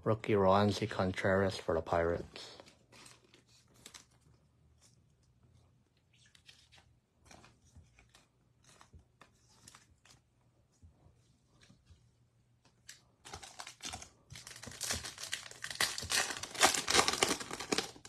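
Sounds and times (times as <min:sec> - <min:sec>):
trading cards rustling and clicking: 0:02.1 - 0:05.4, 0:06.0 - 0:10.4, 0:12.6 - 0:18.0.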